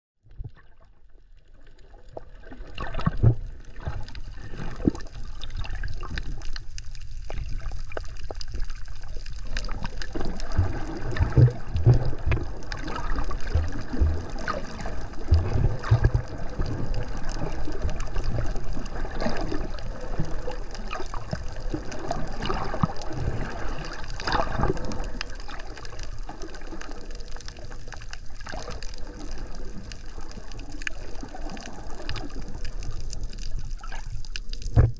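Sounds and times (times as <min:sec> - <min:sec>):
underwater gurgling bubbles: 0:00.2 - 0:34.9
low underwater thumps: 0:02.8 - 0:04.0, 0:10.2 - 0:16.8, 0:34.6 - 0:34.9.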